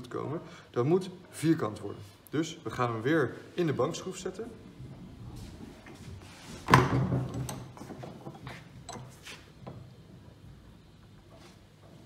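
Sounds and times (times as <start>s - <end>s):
vise handle clicks and knocks: 6.7s - 9.1s.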